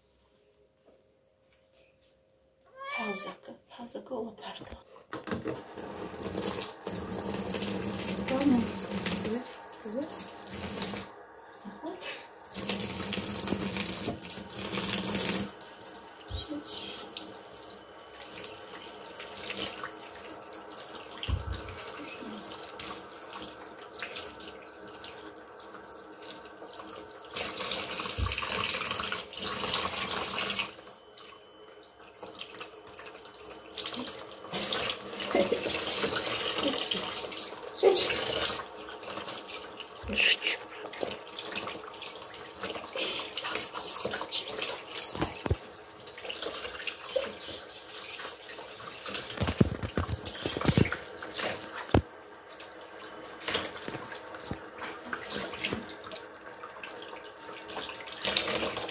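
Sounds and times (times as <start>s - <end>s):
tap running into sink: 5.1s - 8.3s, 12.6s - 15.5s, 21.2s - 21.9s, 28.0s - 29.0s, 49.1s - 52.1s.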